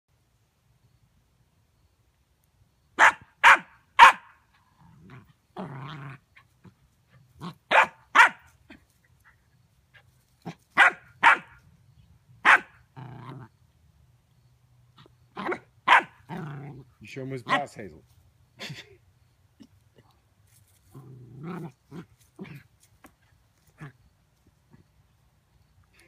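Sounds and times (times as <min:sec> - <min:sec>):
puppy barking: 0:03.0 - 0:04.4, 0:07.4 - 0:08.5, 0:10.8 - 0:11.6, 0:12.4 - 0:12.8, 0:15.4 - 0:16.2
puppy growling: 0:04.8 - 0:07.6, 0:12.9 - 0:13.5, 0:16.3 - 0:16.9, 0:20.9 - 0:22.7, 0:23.6 - 0:24.0.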